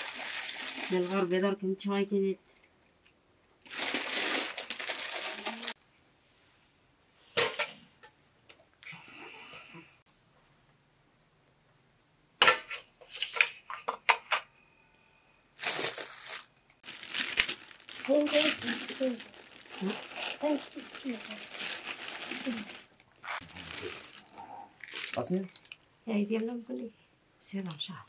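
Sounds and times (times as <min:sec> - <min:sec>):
rustling: 0:15.6 - 0:25.9.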